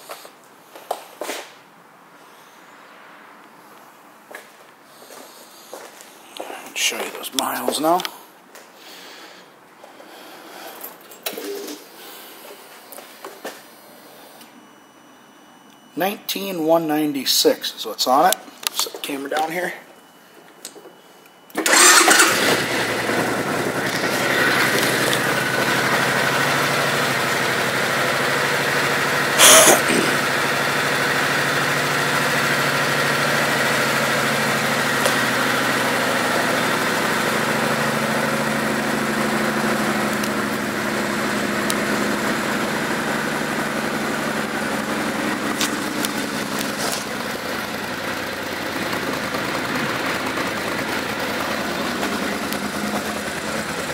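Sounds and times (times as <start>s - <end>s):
motorcycle engine starting and idling: 10.7s - 11.9s, 21.5s - 53.9s
loud burst of noise: 29.4s - 30.3s.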